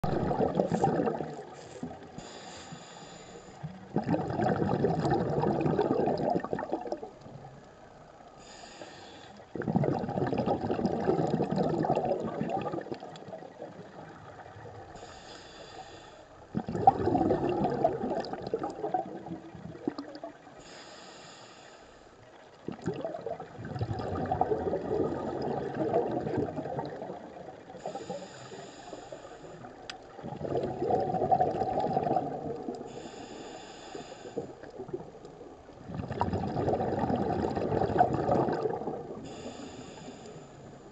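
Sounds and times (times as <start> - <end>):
exhaled air bubbling: 0.0 - 21.2, 22.2 - 40.9
regulator inhale hiss: 1.5 - 3.9, 8.4 - 9.6, 14.9 - 16.5, 20.6 - 22.2, 27.8 - 29.8, 32.8 - 34.7, 39.2 - 40.9.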